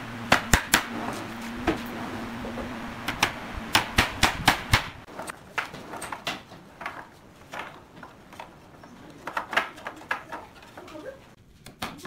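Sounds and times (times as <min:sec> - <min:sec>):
wooden boards knocking: 0:01.6 - 0:11.0.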